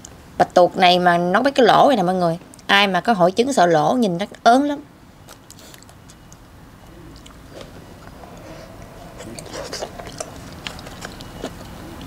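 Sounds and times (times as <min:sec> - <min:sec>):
wet chewing: 0:05.3 - 0:12.0.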